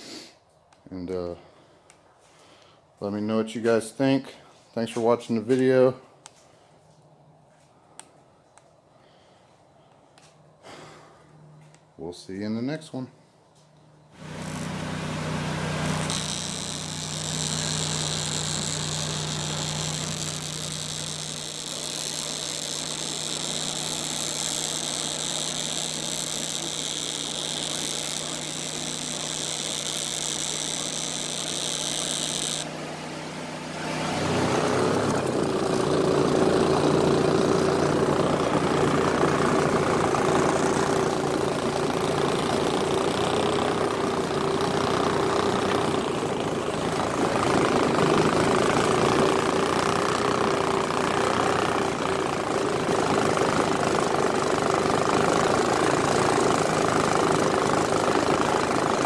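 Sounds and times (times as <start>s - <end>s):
welding arc hissing: 14.2s - 32.7s, 34.6s - 59.0s
outboard motor running: 14.2s - 59.0s
water rushing past hull: 32.7s - 35.8s.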